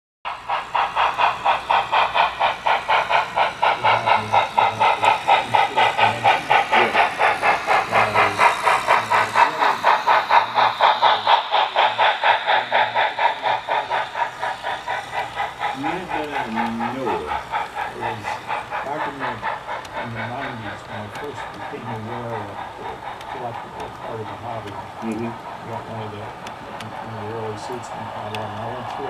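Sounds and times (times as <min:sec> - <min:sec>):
model steam locomotive chuffing: 0:00.3 - 0:29.0
wheels rumbling on track: 0:00.3 - 0:29.0.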